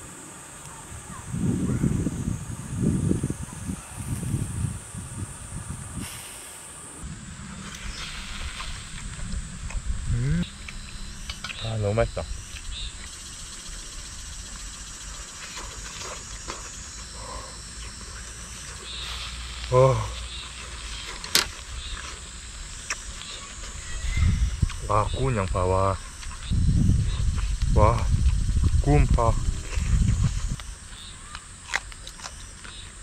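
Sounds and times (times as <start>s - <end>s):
cicadas droning: 0.0s - 33.0s
low rumble: 7.0s - 15.1s.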